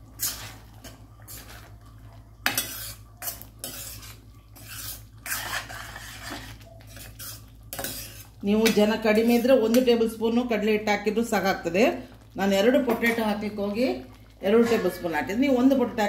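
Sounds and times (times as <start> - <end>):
metal spoon scraping steel pan: 0.2 - 0.6, 2.5 - 8.3.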